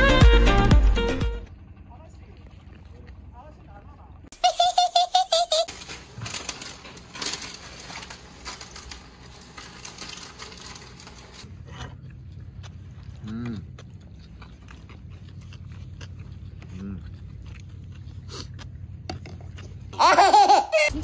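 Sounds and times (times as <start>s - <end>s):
noodles crackling in frying pan: 5.7s - 11.5s
man humming mmm: 13.2s - 13.7s.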